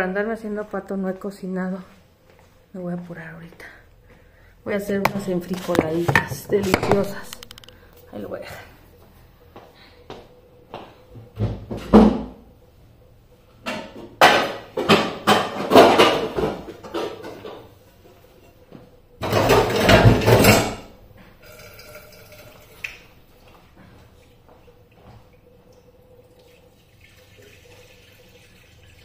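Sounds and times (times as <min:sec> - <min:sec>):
pots and dishes clattering: 0:05.1 - 0:07.7, 0:13.6 - 0:17.8, 0:19.2 - 0:22.5.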